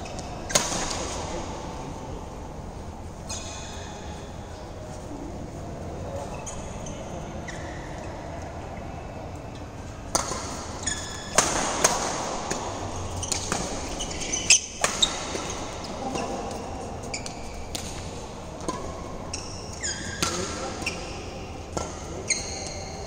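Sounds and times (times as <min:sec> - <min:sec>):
shoes squeaking on court: 0:06.1 - 0:08.3, 0:10.2 - 0:11.4, 0:13.0 - 0:23.0
rackets striking shuttlecock: 0:10.1 - 0:16.6, 0:21.7 - 0:22.9.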